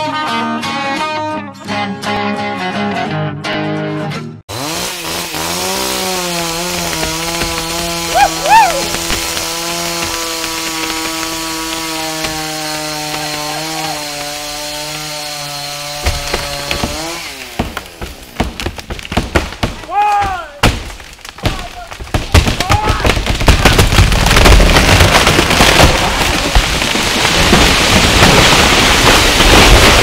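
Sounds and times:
chainsaw running at full throttle: 4.5 - 18.2.

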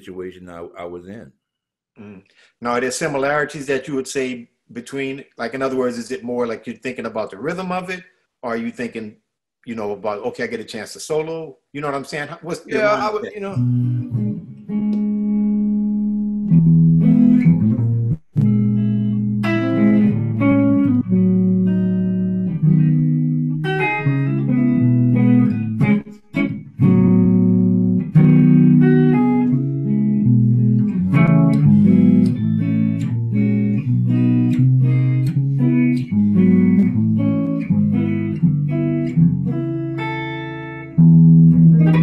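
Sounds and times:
electric guitar chords and phrases: 12.7 - 42.0.

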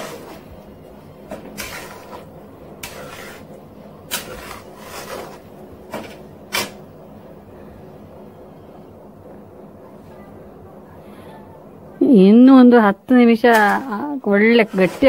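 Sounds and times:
spatula scraping metal pan: 1.5 - 6.8, 13.5 - 15.0.

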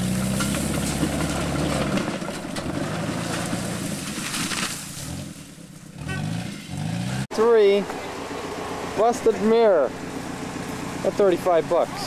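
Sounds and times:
wheels spinning in dirt: 0.0 - 7.2
car engine revving: 5.0 - 7.3.

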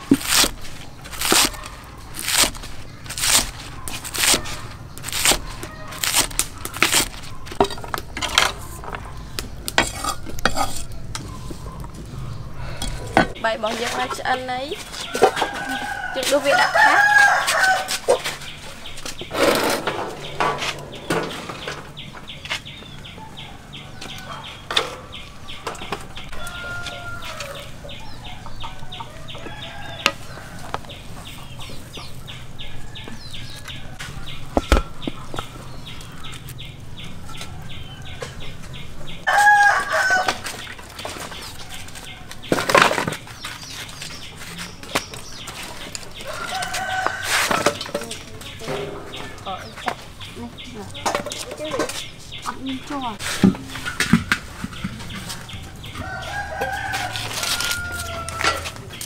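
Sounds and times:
chickens clucking: 0.0 - 59.0
sharp knocks and clatters: 18.9 - 23.2, 53.4 - 56.9.

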